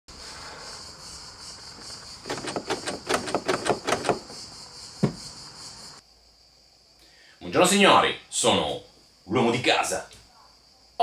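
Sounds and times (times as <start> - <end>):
car door handle clicking: 2.3 - 4.3
door handle knock: 2.3 - 4.4.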